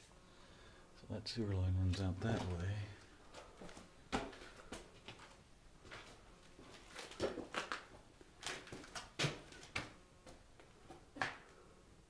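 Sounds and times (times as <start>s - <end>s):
footsteps on gritty concrete: 1.9s - 10.4s.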